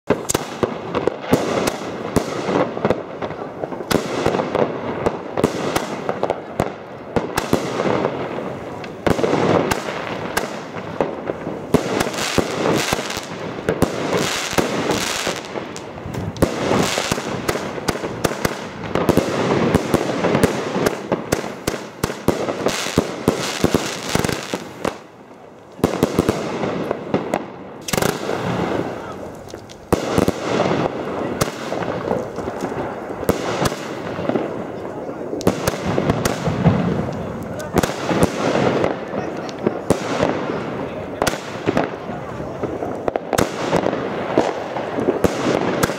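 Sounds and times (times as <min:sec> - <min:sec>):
firework shots rapid series: 0:00.1 - 0:25.1, 0:25.8 - 0:45.9
firework bursts overhead: 0:00.1 - 0:45.9.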